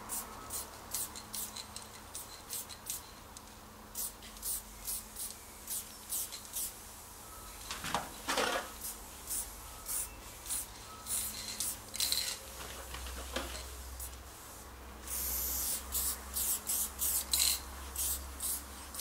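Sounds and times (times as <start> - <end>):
spray-paint can hissing: 0.1 - 3.1, 3.9 - 6.8, 8.8 - 12.2, 13.6 - 19.0.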